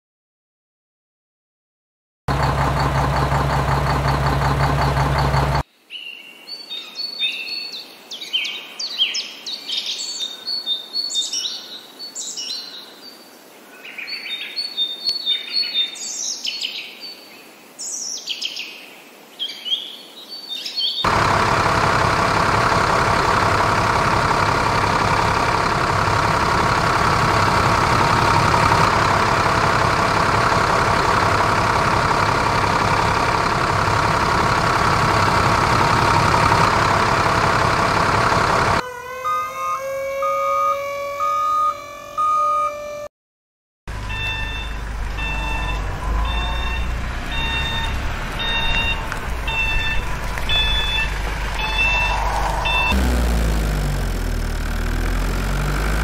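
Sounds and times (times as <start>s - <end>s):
loud engine-like drone: 2.3s - 5.6s, 21.1s - 38.9s, 43.9s - 56.0s
birds chirping: 43.9s - 53.0s.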